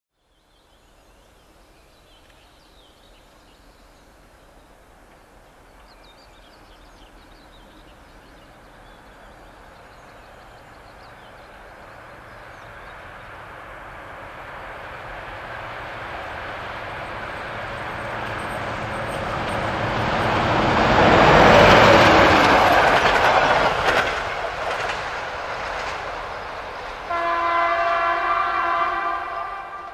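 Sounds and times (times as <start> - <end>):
train rolling noise: 4.2 - 29.9
diesel locomotive engine: 6.6 - 29.9.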